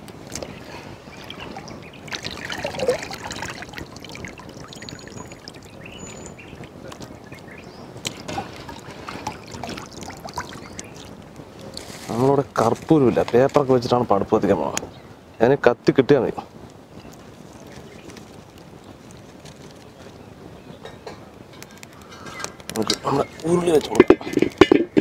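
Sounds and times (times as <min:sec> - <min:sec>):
wet ticks and drips: 0:00.0 - 0:11.9
water trickling into a pot: 0:00.3 - 0:11.9.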